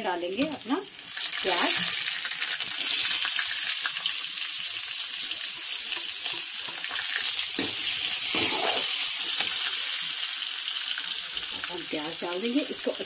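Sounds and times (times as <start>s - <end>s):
onions sizzling in hot oil: 0.0s - 13.0s.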